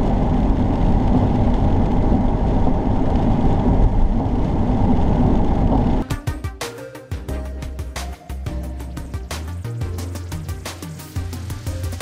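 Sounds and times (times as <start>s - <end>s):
car driving on wet road: 0.0s - 6.0s
music: 6.0s - 12.0s.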